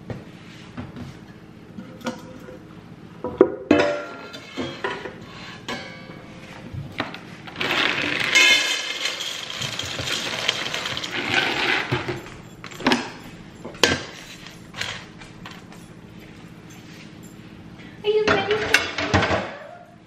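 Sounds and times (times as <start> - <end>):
kibble pouring into metal bowl: 7.6 - 11.9.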